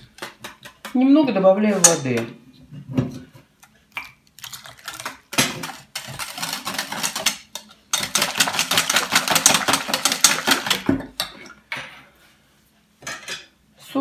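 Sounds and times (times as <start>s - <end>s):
whisk rattling in metal bowl: 4.5s - 11.4s.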